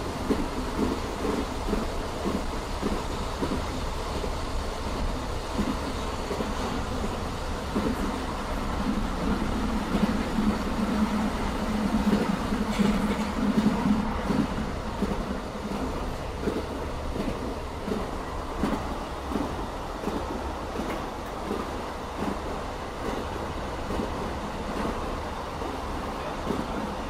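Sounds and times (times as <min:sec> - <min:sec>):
train wheels clattering over joints: 0:05.0 - 0:25.1.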